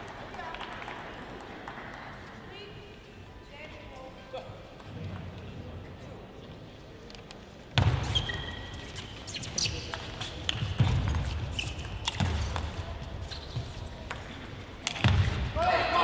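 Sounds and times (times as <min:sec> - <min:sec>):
background noise haze: 0:00.0 - 0:16.0
shoe squeaks: 0:07.9 - 0:10.4, 0:11.1 - 0:12.5, 0:13.2 - 0:14.0.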